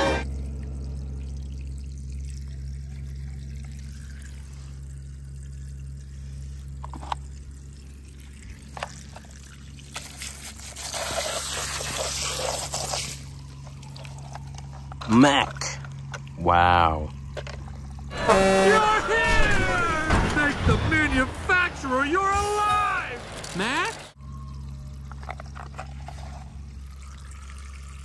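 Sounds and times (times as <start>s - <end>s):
water pouring: 0.2s - 16.4s, 24.1s - 28.0s
water trickling: 0.2s - 18.1s, 24.1s - 28.0s.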